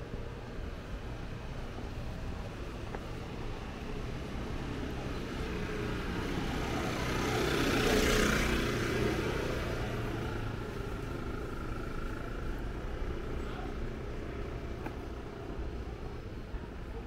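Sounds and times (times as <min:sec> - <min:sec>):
vehicle passing by: 0:04.2 - 0:12.3.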